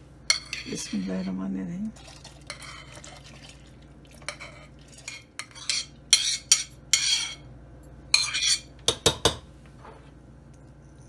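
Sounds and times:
metal spoon scraping and clinking: 0.3 - 1.4, 2.5 - 3.1, 4.3 - 7.4, 8.1 - 8.7.

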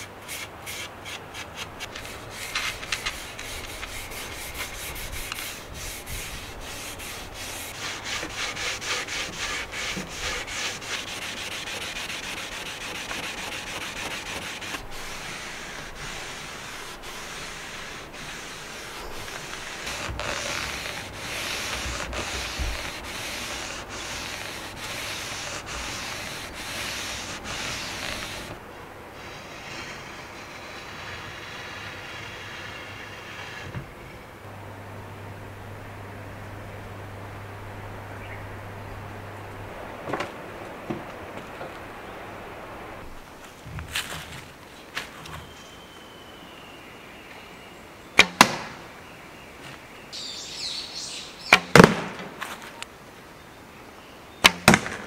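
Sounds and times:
steel wool rubbing on wood: 0.0 - 33.8.

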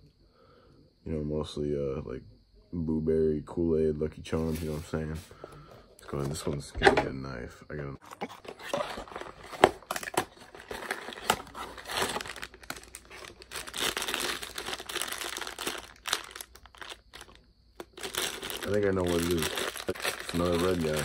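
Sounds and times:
foil bag crinkling and tearing: 8.6 - 21.0.

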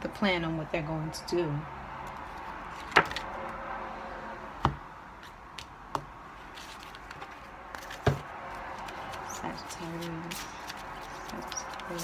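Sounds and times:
cards knocking on a table: 7.8 - 8.3.

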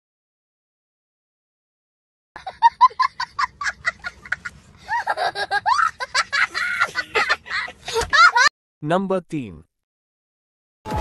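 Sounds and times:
child laughing hard: 2.4 - 8.5.

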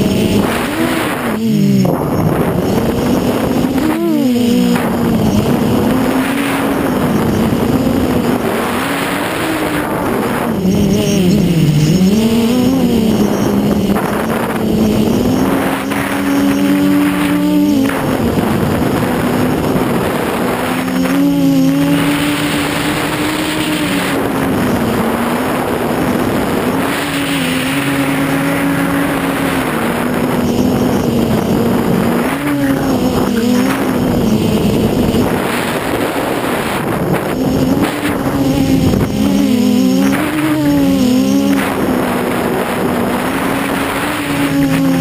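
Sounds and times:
drone motors and propellers buzzing: 0.0 - 45.0.

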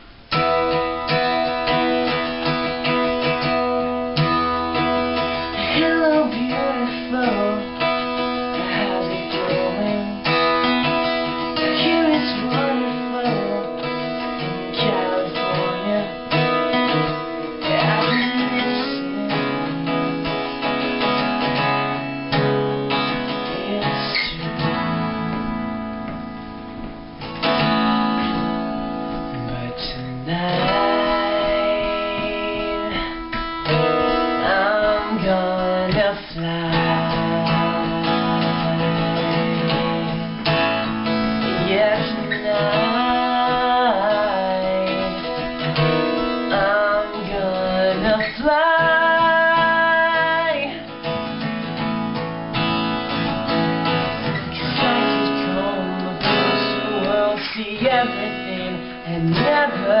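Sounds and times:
strummed acoustic guitar: 0.0 - 60.0
men singing: 5.4 - 10.4, 11.6 - 16.8, 17.6 - 19.8, 29.4 - 33.2, 34.4 - 40.2, 41.5 - 45.5, 46.4 - 50.8, 54.6 - 60.0.

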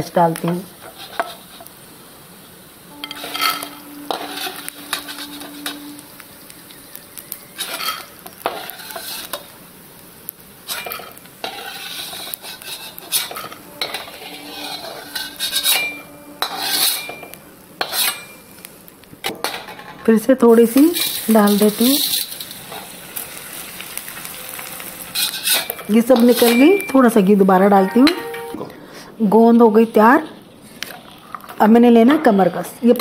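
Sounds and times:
soft sizzling oil: 0.0 - 28.5
metal skimmer scraping a pan: 2.9 - 9.4, 10.7 - 18.5, 20.9 - 26.8.

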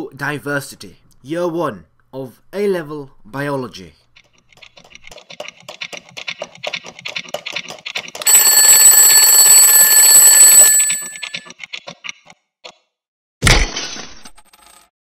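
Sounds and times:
alarm clock bell ringing: 8.2 - 11.4
alarm clock ticking: 8.2 - 11.4.

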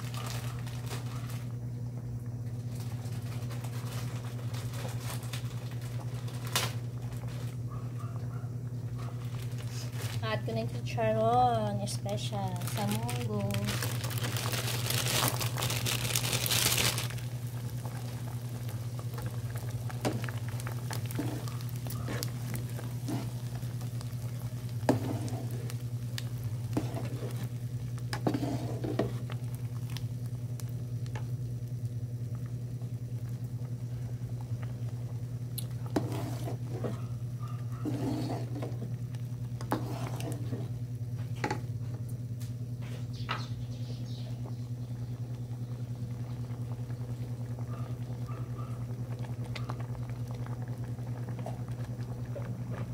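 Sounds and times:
crackling as cracklings drop in pot: 0.0 - 52.9
pot simmering: 0.0 - 52.9
steady low hum: 0.0 - 52.9.

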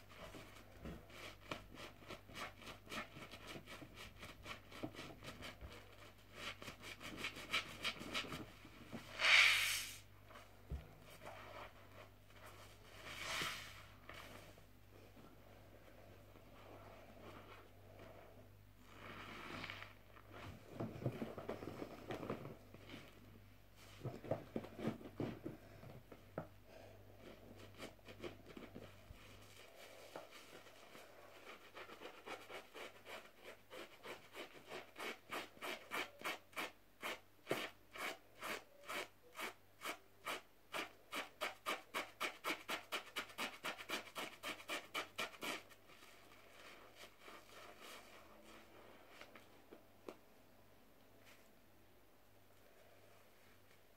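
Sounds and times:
fingers scratching wet sponge: 30.4 - 45.8.

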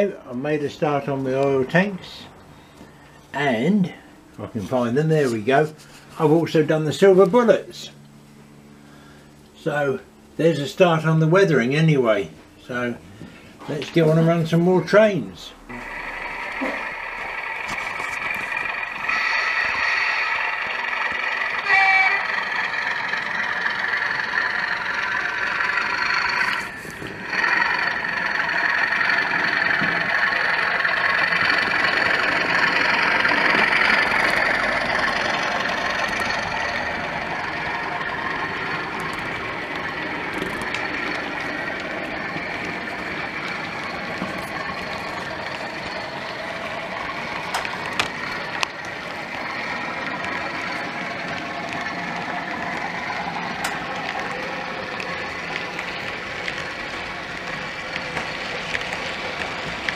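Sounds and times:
model train wheels on track: 0.0 - 8.8, 9.4 - 59.9
diesel engine under load: 0.0 - 59.9
short tone: 21.6 - 22.8.

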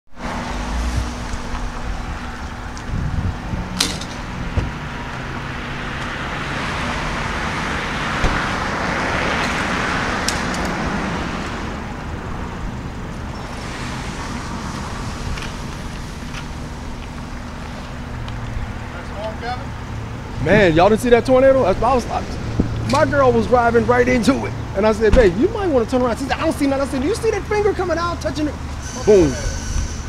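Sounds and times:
road traffic rumble: 0.1 - 30.0
vehicle passing: 0.2 - 30.0.

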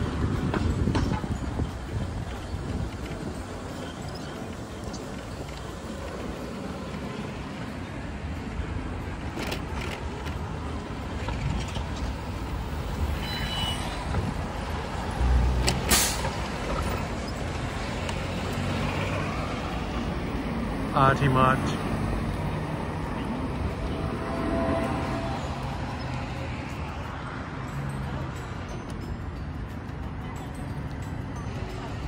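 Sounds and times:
wind rumbling on microphone: 0.0 - 7.4
city street traffic: 0.0 - 32.0.

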